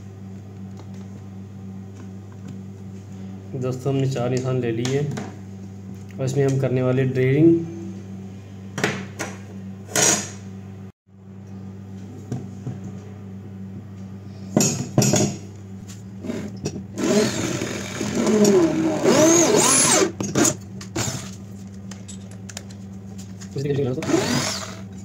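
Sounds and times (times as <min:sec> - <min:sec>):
electric drill drilling metal: 0:16.2 - 0:21.4, 0:24.0 - 0:24.9.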